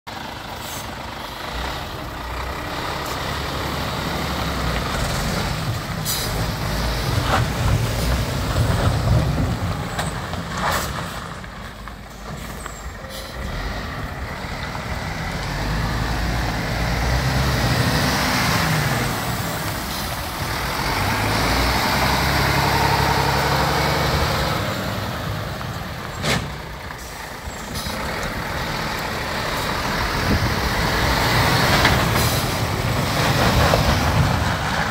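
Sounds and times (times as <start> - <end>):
truck diesel engine running: 0.1 - 9.9, 11.7 - 34.9
air brake hisses: 13.1 - 13.5.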